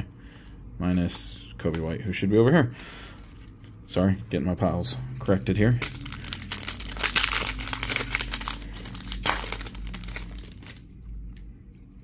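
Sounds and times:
plastic wrapper crinkling: 5.2 - 12.0.

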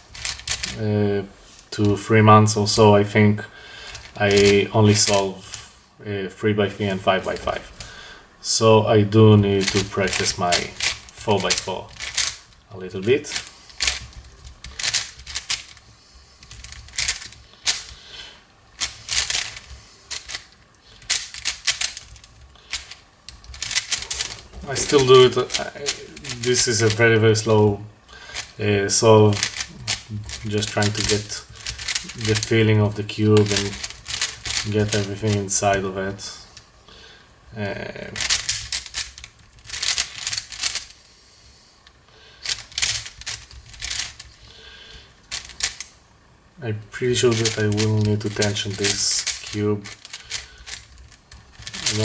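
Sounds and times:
plastic puzzle cube clicking: 0.1 - 0.7, 9.6 - 12.4, 13.3 - 15.8, 16.4 - 18.0, 18.8 - 27.0, 29.3 - 32.5, 33.4 - 35.1, 38.2 - 40.9, 42.4 - 44.3, 45.3 - 45.9, 47.3 - 52.0.

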